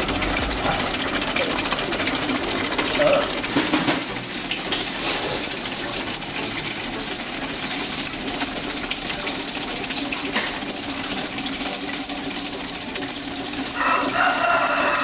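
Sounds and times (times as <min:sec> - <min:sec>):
water gushing and splashing: 0:00.0 - 0:15.0.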